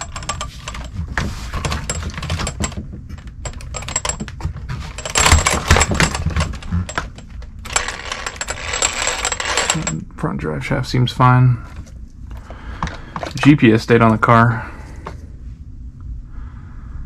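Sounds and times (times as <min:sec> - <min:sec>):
scraping and rustling: 0:00.0 - 0:10.0
toy car clicking and rattling: 0:05.0 - 0:10.0.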